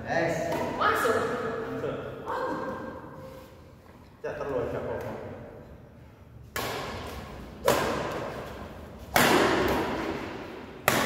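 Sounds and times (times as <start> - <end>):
badminton racket hitting shuttlecock: 6.5 - 11.0.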